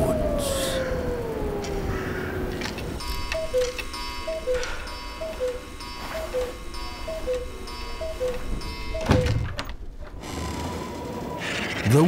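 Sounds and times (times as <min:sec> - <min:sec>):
clock ticking tick-tock: 0:03.0 - 0:09.2.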